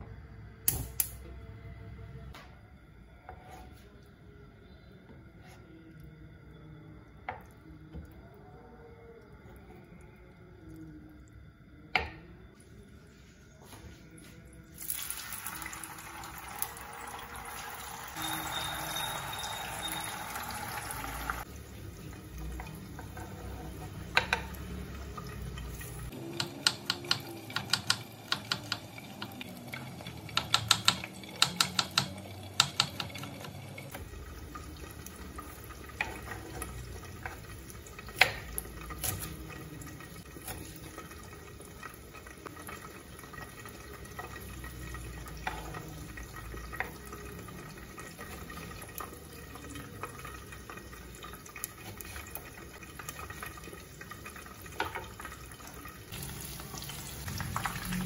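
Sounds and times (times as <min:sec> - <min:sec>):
tofu sizzling in hot oil: 0:14.8 - 0:21.5, 0:49.9 - 0:58.0.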